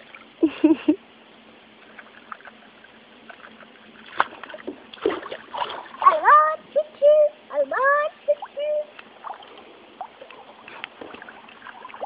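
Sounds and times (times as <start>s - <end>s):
water splashing in a small pool: 0.0s - 0.7s, 1.7s - 6.6s, 8.2s - 12.0s.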